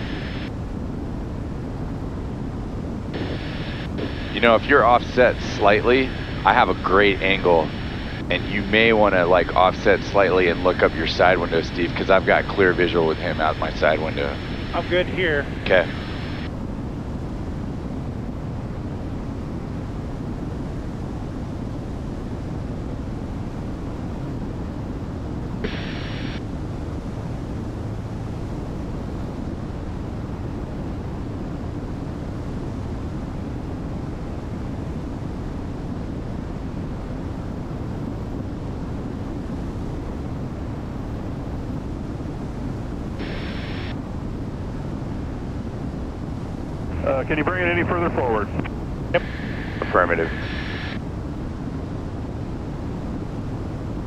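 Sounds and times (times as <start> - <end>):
aircraft engines droning: 0.0 - 18.1, 38.2 - 54.0
airflow: 3.2 - 16.5, 43.0 - 51.7.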